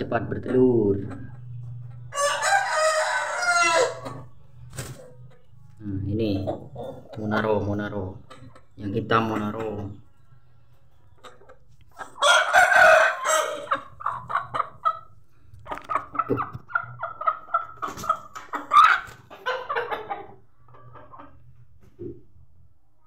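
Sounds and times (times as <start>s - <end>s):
chickens clucking: 0.0s - 23.0s
rooster crowing: 2.1s - 4.2s, 12.2s - 13.8s
chicken squawking: 2.1s - 5.4s, 6.2s - 10.1s, 11.2s - 21.5s.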